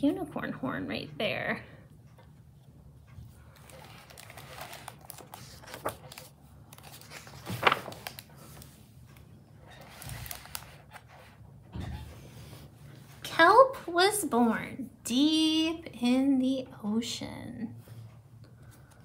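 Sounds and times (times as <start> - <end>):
book pages rustling: 2.6 - 11.4.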